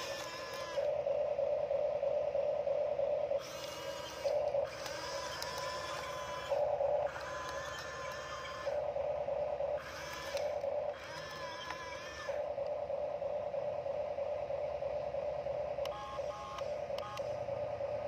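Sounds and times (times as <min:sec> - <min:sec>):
toy electric motors whining: 0:00.0 - 0:00.9, 0:03.4 - 0:09.2, 0:09.8 - 0:12.6, 0:15.8 - 0:17.4
steady low motor hum: 0:00.0 - 0:18.0.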